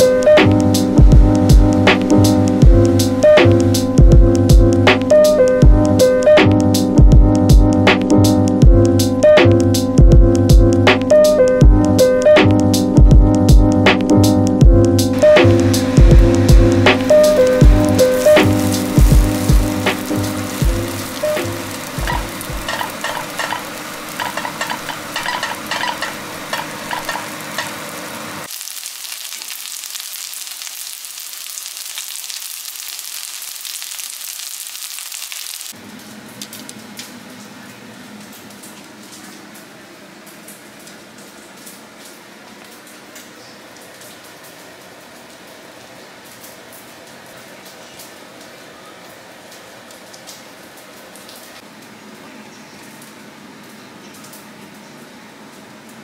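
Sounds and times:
rice sizzling in a pan: 0:15.1 - 0:35.8.

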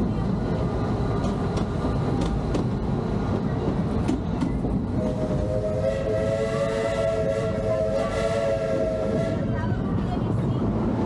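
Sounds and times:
wheels clicking over rail joints: 0:00.0 - 0:05.0
railroad cars rumbling on track: 0:00.0 - 0:11.0.

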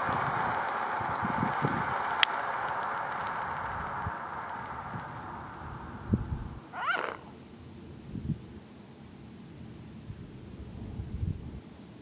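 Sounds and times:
swan nasal call: 0:06.7 - 0:07.4.

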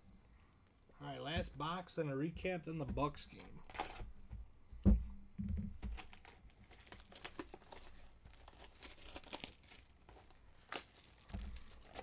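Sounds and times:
plastic wrap crinkling and tearing: 0:05.9 - 0:12.0.

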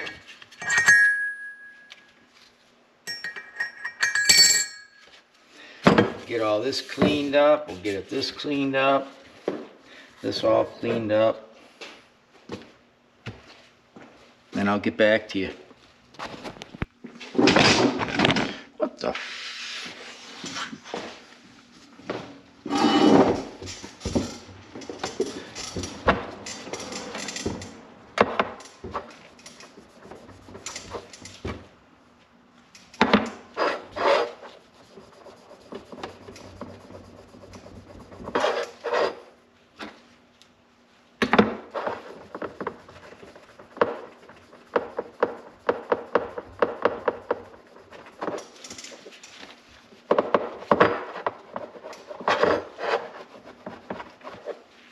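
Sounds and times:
hand scrubbing a metal part: 0:33.6 - 0:39.2, 0:41.7 - 0:49.1.

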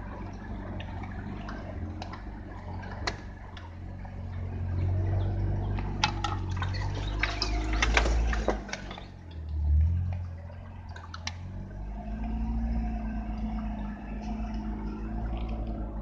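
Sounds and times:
car engine running low: 0:00.0 - 0:16.0
branches scraping and snapping: 0:05.7 - 0:09.1.

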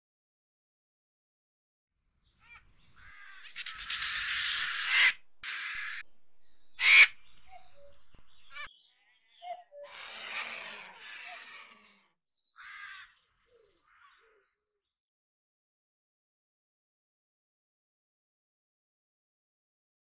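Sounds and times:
crow-like bird caws: 0:02.4 - 0:06.0, 0:06.8 - 0:07.2, 0:09.9 - 0:12.0, 0:12.6 - 0:13.2.

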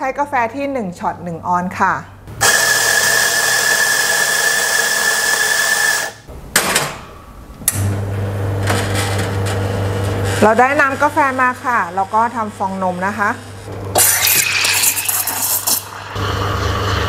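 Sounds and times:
electric coffee grinder whining: 0:02.4 - 0:06.2, 0:11.8 - 0:17.0
espresso machine pump humming: 0:02.4 - 0:06.2, 0:09.9 - 0:17.0.

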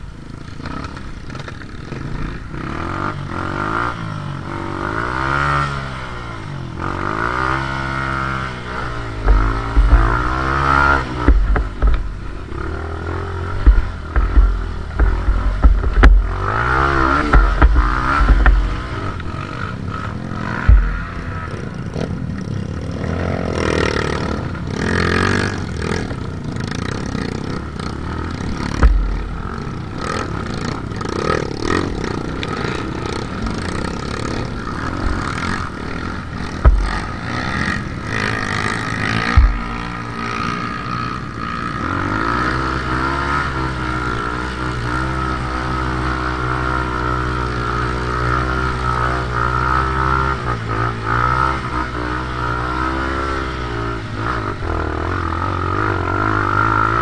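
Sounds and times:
dirt bike engine revving: 0:00.0 - 0:57.0
short low thumps: 0:09.0 - 0:12.3, 0:13.4 - 0:16.5, 0:17.1 - 0:19.0, 0:20.6 - 0:21.2, 0:28.7 - 0:30.0, 0:36.5 - 0:37.2, 0:39.2 - 0:40.1.

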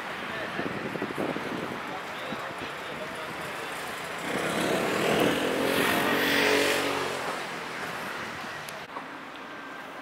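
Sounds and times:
vehicle passing by: 0:04.2 - 0:07.7.

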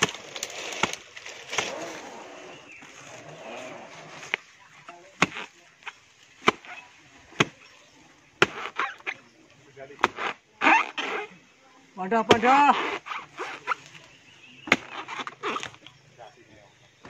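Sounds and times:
rustling of fronds: 0:00.0 - 0:17.0
blade chopping into palm: 0:08.4 - 0:09.2, 0:10.0 - 0:11.2.

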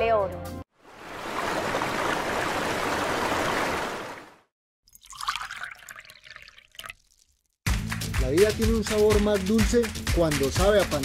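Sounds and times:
running water trickle: 0:00.8 - 0:04.2, 0:04.9 - 0:07.6.

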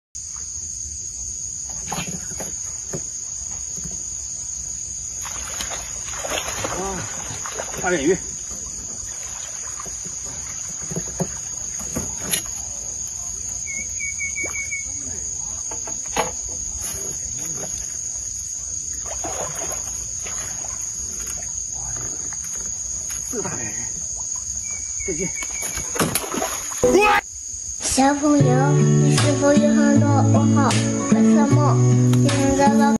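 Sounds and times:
insects buzzing: 0:00.2 - 0:32.9
fish splashing in water: 0:05.1 - 0:13.0, 0:18.8 - 0:22.7, 0:25.4 - 0:26.8
high-pitched insect drone: 0:13.2 - 0:16.0, 0:21.2 - 0:28.9.

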